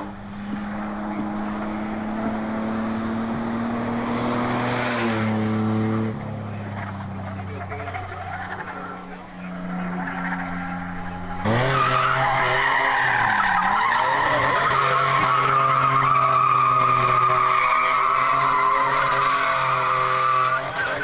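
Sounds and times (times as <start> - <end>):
truck engine at high revs: 0.0 - 21.0
tyres squealing on pavement: 6.7 - 21.0.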